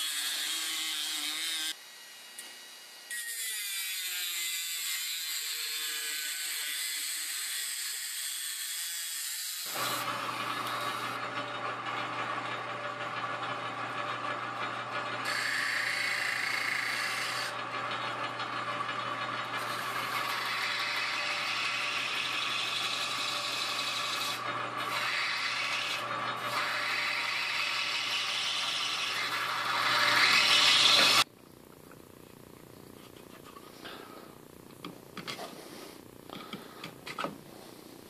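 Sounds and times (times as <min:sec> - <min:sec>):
sander motor hum: 0:09.7 - 0:36.4
blade grinding on sanding belt: 0:15.2 - 0:31.3.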